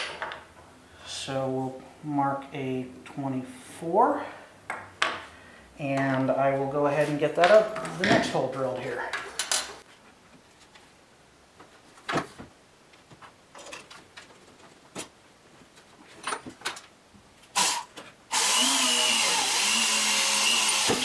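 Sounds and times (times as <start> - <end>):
power drill drilling into wood: 17.6 - 21.0.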